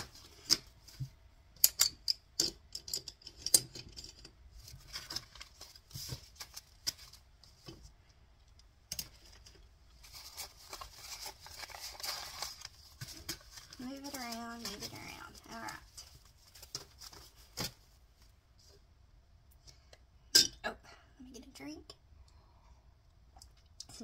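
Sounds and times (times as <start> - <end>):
paper bills crinkling and snapping: 10.0 - 17.8.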